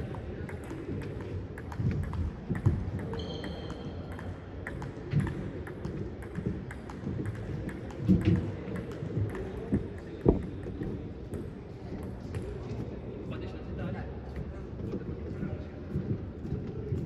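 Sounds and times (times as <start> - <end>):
table tennis balls clicking: 0.1 - 11.5.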